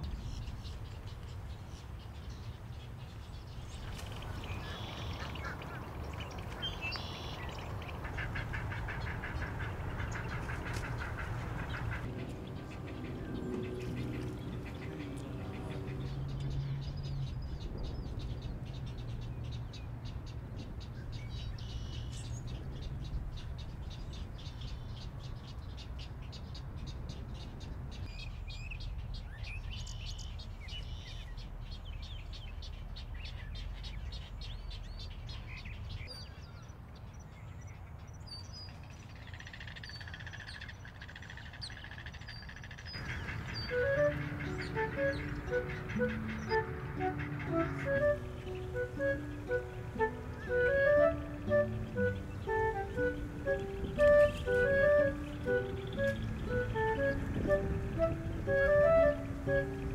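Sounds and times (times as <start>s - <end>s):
bird chirps and whistled calls: 6.2s - 7.9s, 21.2s - 22.5s, 41.2s - 59.9s.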